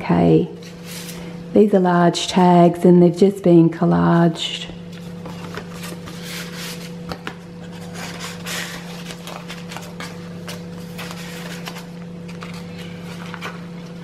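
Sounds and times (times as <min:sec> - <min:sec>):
steady low hum: 0:00.0 - 0:14.0
paper and card rustling: 0:04.9 - 0:14.0.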